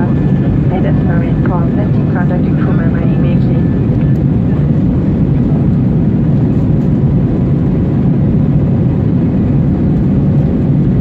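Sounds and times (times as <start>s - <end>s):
faint steady hum: 0.0s - 5.5s
jet engine rumble in cabin: 0.0s - 11.0s.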